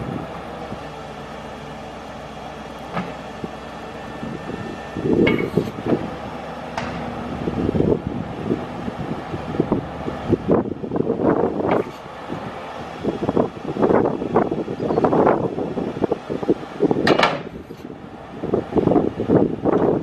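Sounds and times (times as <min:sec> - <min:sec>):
wind buffeting microphone: 0:00.0 - 0:01.0, 0:03.1 - 0:20.0
truck engine idling: 0:00.0 - 0:20.0.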